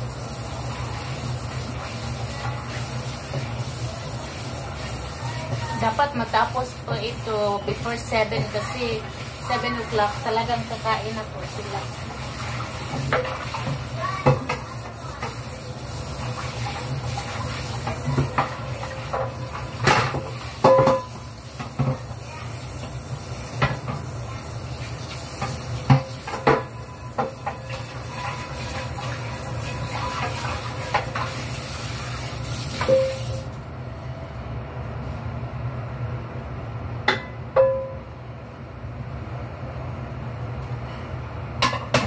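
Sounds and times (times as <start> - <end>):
tap water running: 0.0 - 33.6
dishes clinking and knocking: 17.8 - 22.0, 25.4 - 27.9, 41.6 - 42.0.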